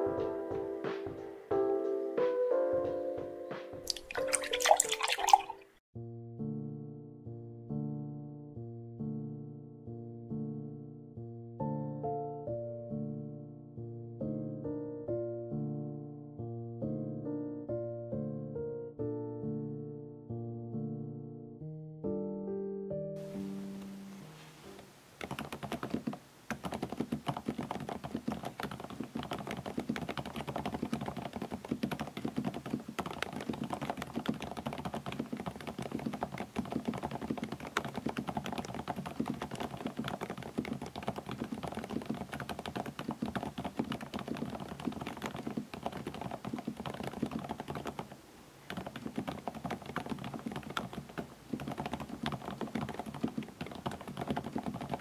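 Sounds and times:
fast typing on mechanical keyboard: 0:25.2 - 0:55.0.

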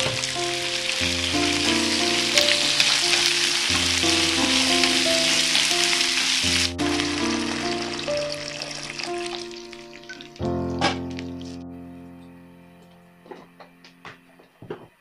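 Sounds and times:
vegetables sizzling in hot oil: 0:00.0 - 0:10.3
water poured into pan: 0:00.0 - 0:10.4
background music: 0:00.0 - 0:14.7.

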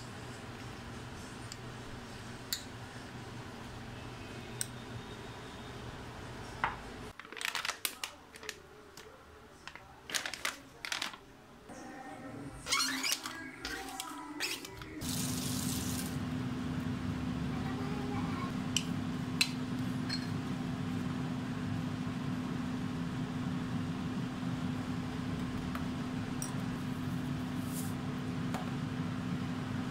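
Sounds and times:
low mechanical hum: 0:11.7 - 0:29.9.

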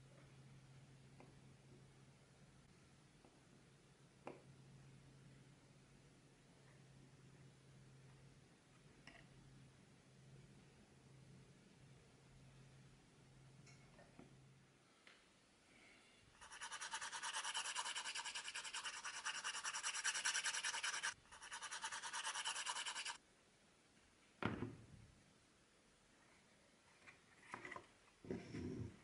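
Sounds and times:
hand sanding wood: 0:16.4 - 0:23.2.

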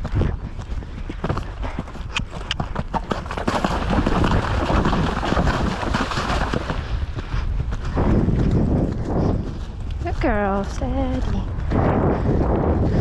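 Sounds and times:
hoofbeats on grass: 0:00.0 - 0:13.0
horse splashing through water: 0:03.1 - 0:07.0.

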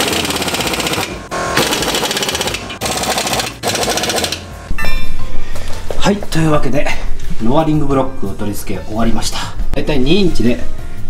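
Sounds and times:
pneumatic impact wrench hammering: 0:00.0 - 0:04.7.

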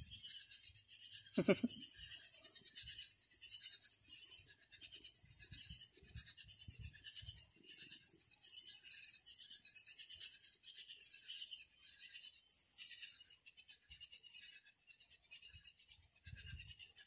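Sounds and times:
night insects buzzing: 0:01.2 - 0:01.9.

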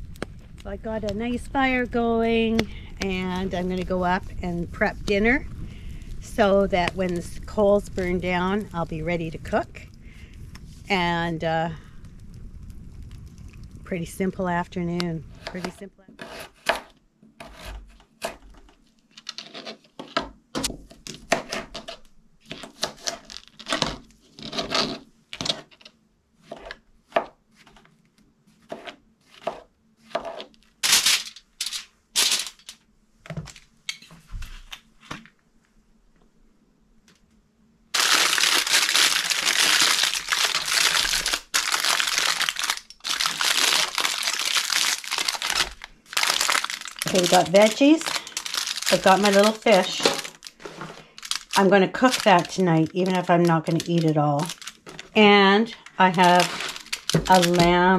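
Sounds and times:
aluminium foil crinkling: 0:17.7 - 0:20.0, 0:21.0 - 0:26.0, 0:30.3 - 0:32.8, 0:38.0 - 0:57.9.

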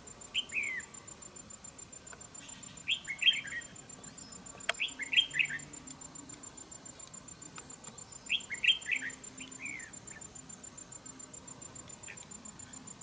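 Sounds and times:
bird whistling song: 0:00.3 - 0:00.9, 0:02.4 - 0:05.8, 0:08.2 - 0:10.3.

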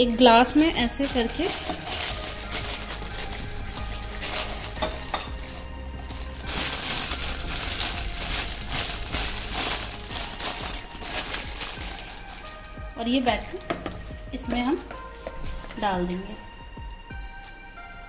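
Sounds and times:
plastic bag crinkling: 0:00.4 - 0:14.1.

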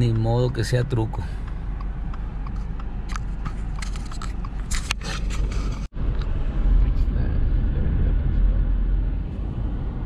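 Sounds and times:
car engine and road rumble: 0:00.0 - 0:10.0
clicks and rustles: 0:01.4 - 0:06.3.

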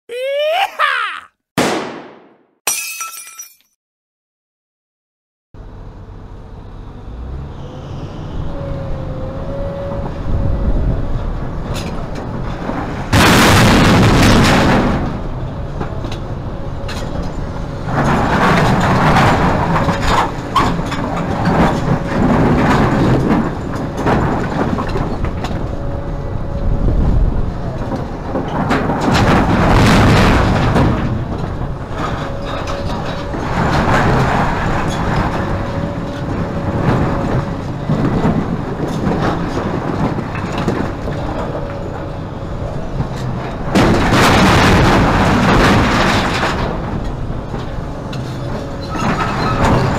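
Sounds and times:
excavator diesel engine running: 0:15.1 - 0:49.9.

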